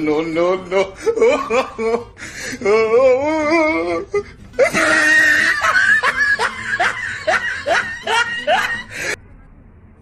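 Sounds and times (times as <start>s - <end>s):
high-pitched laughter: 4.6s - 9.2s.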